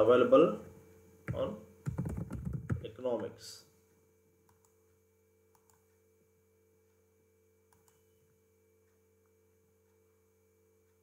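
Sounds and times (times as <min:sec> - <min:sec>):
faint electrical hum: 0:00.0 - 0:11.0
computer mouse clicks: 0:04.5 - 0:04.8, 0:05.5 - 0:05.9, 0:07.7 - 0:08.1.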